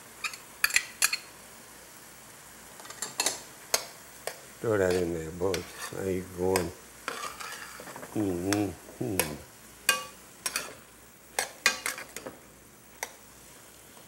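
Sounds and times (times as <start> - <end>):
vegetables sizzling: 0.0 - 14.0
metal spoon scraping a pot: 4.9 - 6.0, 7.1 - 8.0
short vocal sound: 8.2 - 9.5.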